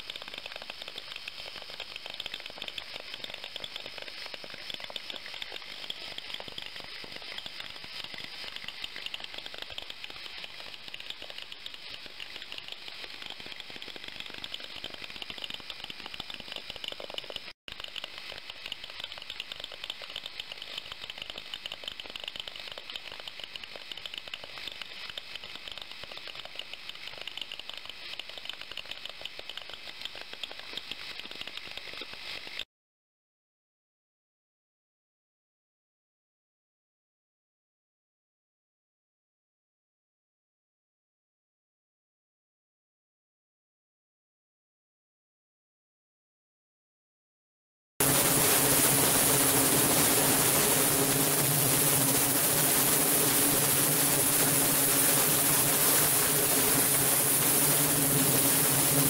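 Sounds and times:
ultrasonic bath crackling hiss: 0.0 - 32.6, 48.0 - 59.0.

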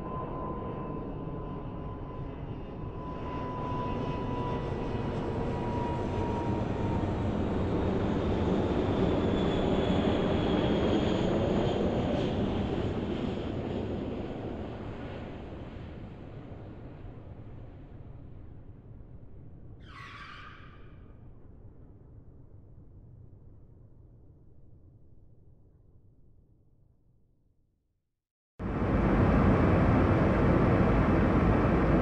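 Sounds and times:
high jet engine whine: 0.0 - 17.3, 28.6 - 32.0
jet airliner roar overhead: 0.0 - 17.7, 28.6 - 32.0.

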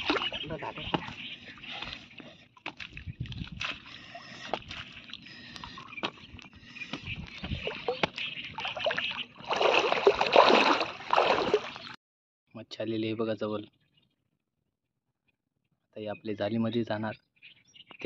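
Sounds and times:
water sloshing: 0.0 - 12.0
water splashing on fishing net: 8.6 - 11.8.

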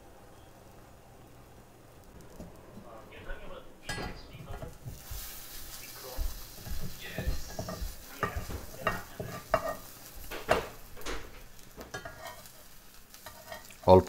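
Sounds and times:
eggs sizzling in a frying pan: 0.0 - 14.0
utensil scraping and knocking pan: 3.9 - 13.8.

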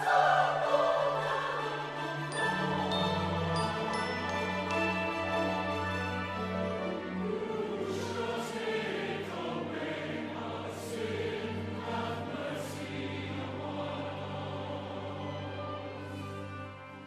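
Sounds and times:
orchestra playing: 0.0 - 12.5
mixed chorus singing: 0.0 - 16.6.

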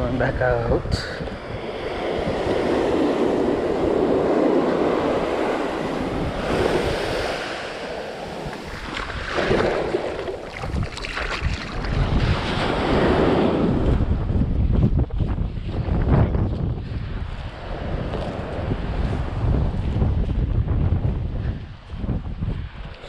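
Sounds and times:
wind buffeting microphone: 0.0 - 23.0
surf washing up sandy beach: 0.3 - 14.8.

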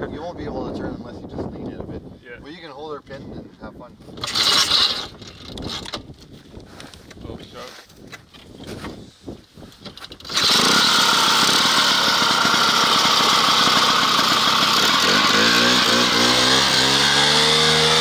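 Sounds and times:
snowmobile engine at full throttle: 10.3 - 18.0.

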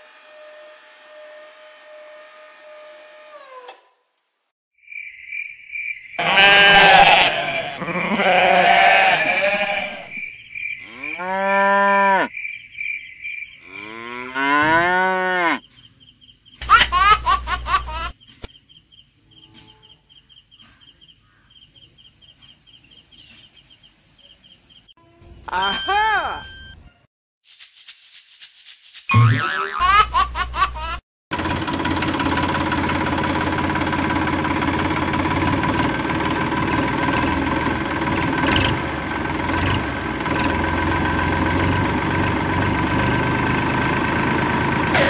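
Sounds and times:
cows mooing: 6.2 - 10.2, 10.8 - 12.3, 13.7 - 15.6.

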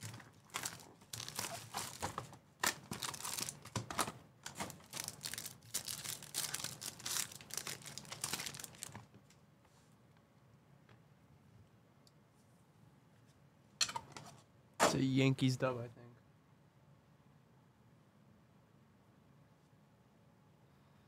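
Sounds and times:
plastic wrapping crinkling and ripping: 0.0 - 9.1.

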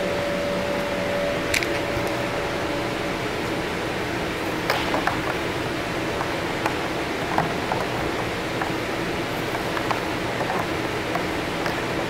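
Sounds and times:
blower fans whirring: 0.0 - 12.0
faint clicks and knocks: 6.2 - 8.8, 9.4 - 11.9.

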